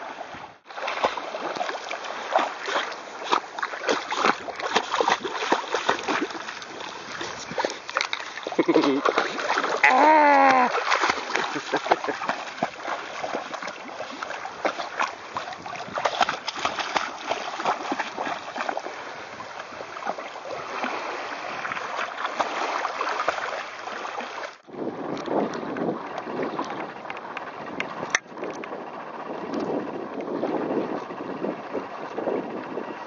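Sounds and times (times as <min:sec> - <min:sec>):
water moving against kayak: 0:00.0 - 0:33.0
water splashing and churning: 0:00.0 - 0:33.0
wind on microphone: 0:12.6 - 0:22.0, 0:24.6 - 0:33.0.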